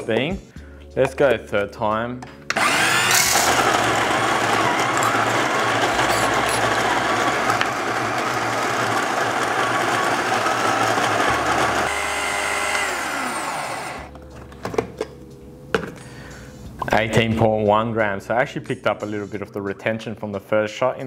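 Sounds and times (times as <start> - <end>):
coffee grinder whirring: 2.5 - 14.1
motor spinning down: 2.6 - 14.1.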